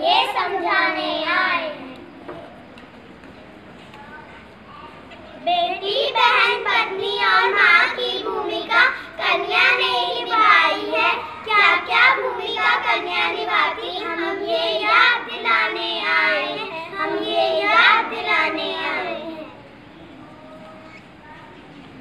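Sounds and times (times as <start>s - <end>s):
children singing together: 0.0s - 2.1s, 5.5s - 19.8s.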